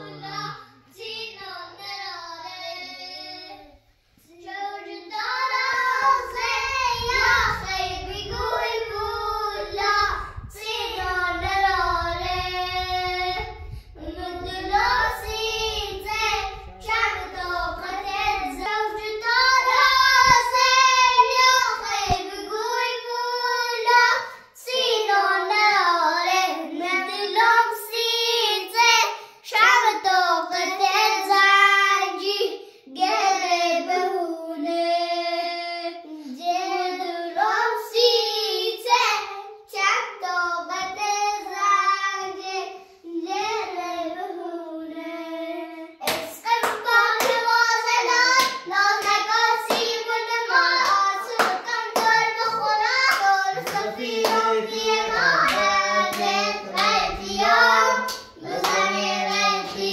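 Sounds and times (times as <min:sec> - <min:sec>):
child singing: 0:00.0 - 0:59.9
sharp hand claps: 0:46.0 - 0:47.4, 0:48.4 - 0:50.0, 0:50.8 - 0:52.2, 0:53.0 - 0:54.5.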